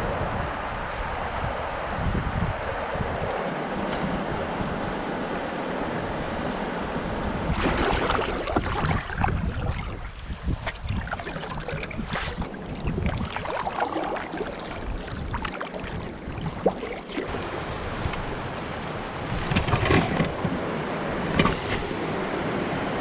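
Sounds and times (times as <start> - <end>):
wind buffeting microphone: 0.0 - 23.0
water splashing and rushing: 7.4 - 23.0.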